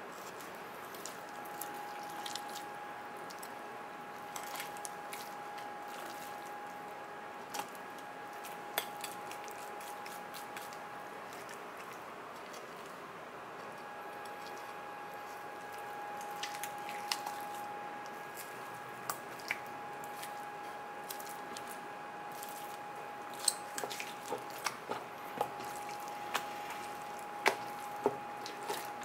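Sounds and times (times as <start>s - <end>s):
knife squishing through raw meat: 4.3s - 6.6s, 7.5s - 13.0s, 14.2s - 29.0s.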